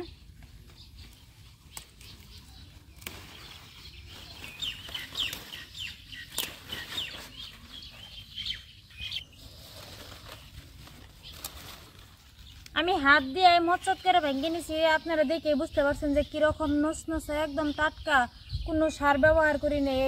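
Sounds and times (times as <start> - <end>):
leaves rustling: 0.0 - 15.2
birds chirping: 0.0 - 20.0
plant shoots snapping: 1.7 - 3.4, 6.2 - 7.1.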